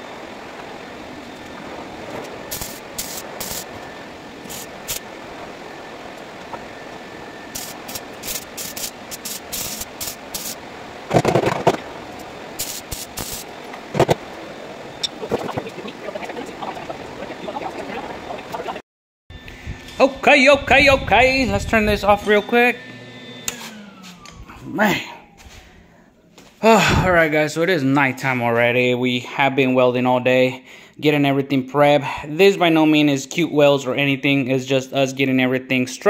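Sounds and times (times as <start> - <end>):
welding arc crackling: 0.5 - 18.8.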